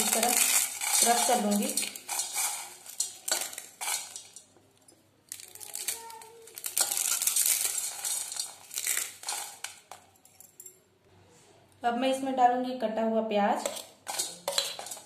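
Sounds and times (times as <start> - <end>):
dry noodles crunching in steel bowl: 0.0 - 4.6, 5.3 - 10.0, 13.6 - 15.0.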